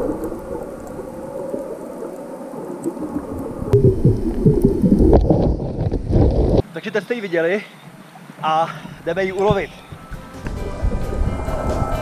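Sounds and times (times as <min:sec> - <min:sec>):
underwater rumbling: 0:00.0 - 0:06.6, 0:08.2 - 0:12.0
low underwater thumps: 0:03.5 - 0:06.6, 0:08.2 - 0:12.0.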